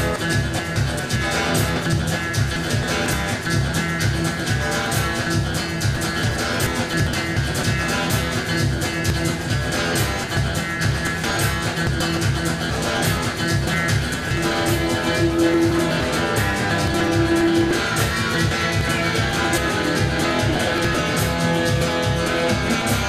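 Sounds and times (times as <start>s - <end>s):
instrumental music with steady beat: 0.0s - 23.0s.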